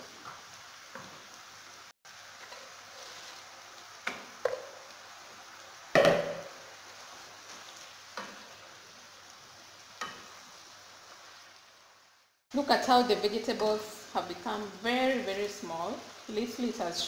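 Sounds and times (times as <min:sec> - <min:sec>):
spinach sizzling in a pot: 0:00.0 - 0:17.0
spoon knocking against pot: 0:06.0 - 0:06.5.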